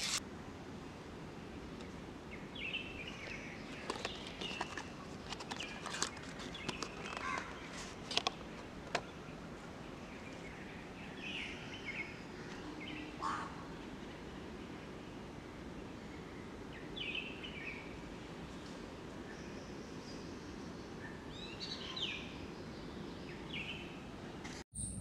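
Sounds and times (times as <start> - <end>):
box and bottle clicks and rustles: 3.8 - 9.0
bird chirps: 24.8 - 25.0.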